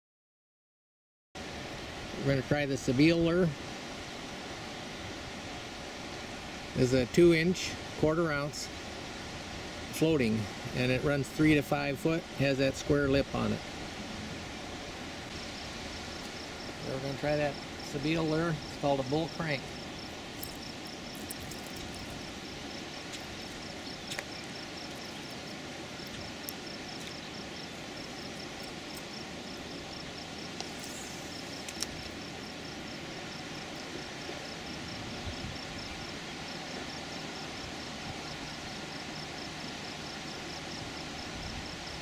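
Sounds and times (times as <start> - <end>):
outdoor background hiss: 1.4 - 42.0
insect chirping: 3.0 - 42.0
faint clicks: 31.6 - 32.2.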